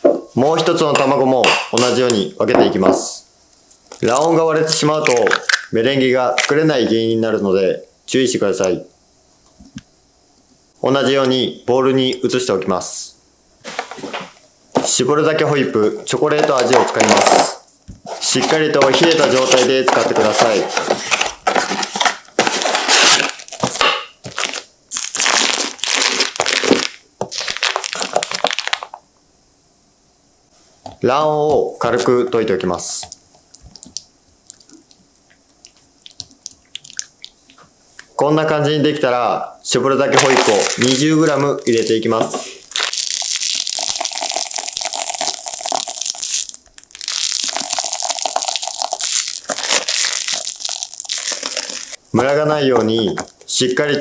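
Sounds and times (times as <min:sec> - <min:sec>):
plastic wrapper crinkling: 0:03.8 - 0:05.7, 0:18.2 - 0:29.0, 0:40.1 - 0:53.8.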